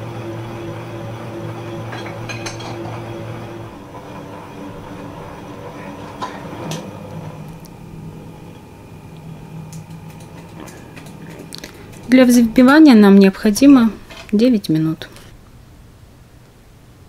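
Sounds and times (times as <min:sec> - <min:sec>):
stand mixer motor hum: 0:00.0 - 0:13.1
whisk whipping in metal bowl: 0:09.7 - 0:14.4.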